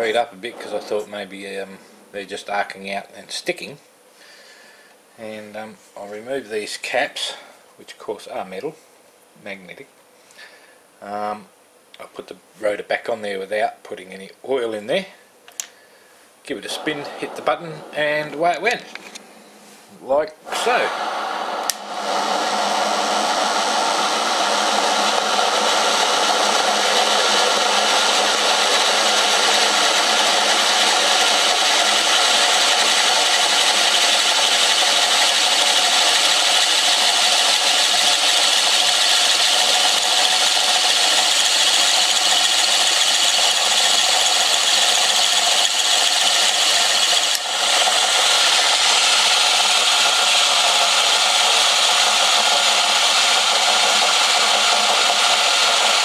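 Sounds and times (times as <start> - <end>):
motor whirring: 0.0 - 1.3, 16.6 - 19.2, 20.5 - 56.0.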